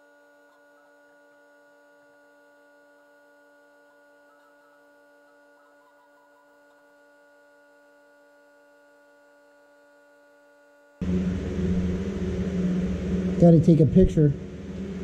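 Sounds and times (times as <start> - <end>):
faint electrical hum: 0.0 - 15.0
loud low rumbling noise: 11.0 - 15.0.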